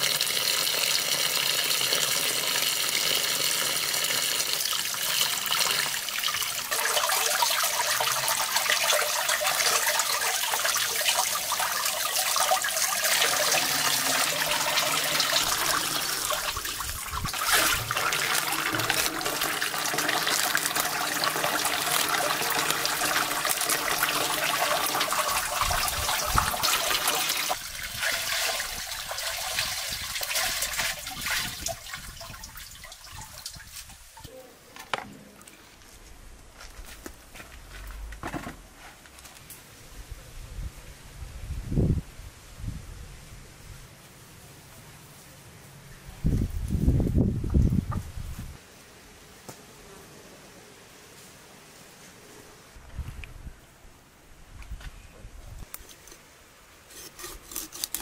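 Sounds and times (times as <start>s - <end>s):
tap water running into basin: 0.0s - 33.9s.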